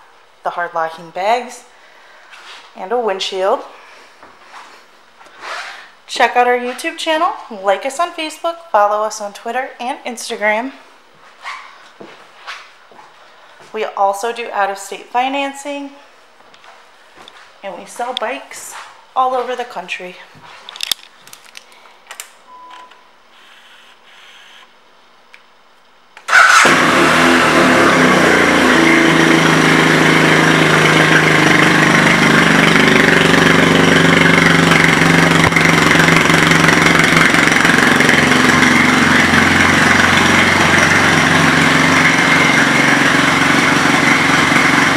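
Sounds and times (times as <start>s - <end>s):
motorcycle engine starting and idling: 26.2s - 44.9s.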